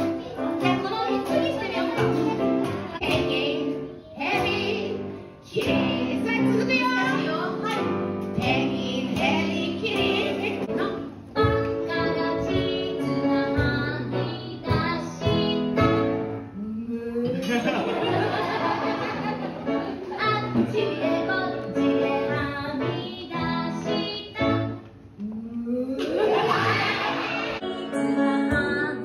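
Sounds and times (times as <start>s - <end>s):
children singing along: 0.0s - 7.8s, 26.1s - 29.0s
piano accompaniment: 0.0s - 16.6s, 17.4s - 25.2s, 26.2s - 29.0s
woman singing into microphone: 27.6s - 29.0s.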